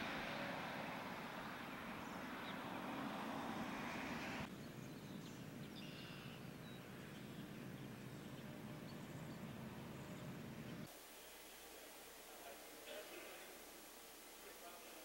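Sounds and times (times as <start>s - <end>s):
steady rushing noise: 0.0s - 4.5s.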